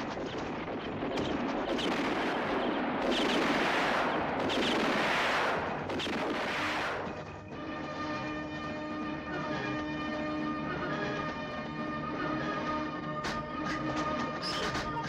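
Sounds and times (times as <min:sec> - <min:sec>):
echoing pistol gunfire: 0:00.0 - 0:07.1
music with held tones: 0:07.2 - 0:15.0.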